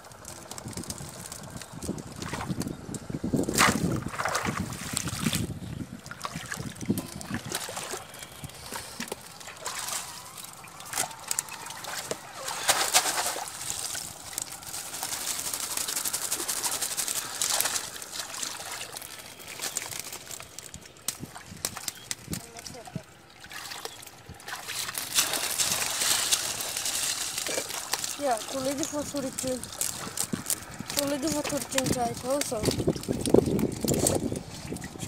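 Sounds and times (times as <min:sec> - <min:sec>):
water splashing and trickling: 0:00.0 - 0:35.0
fish slapping in a plastic crate: 0:03.5 - 0:05.5, 0:08.8 - 0:22.8, 0:23.5 - 0:34.9.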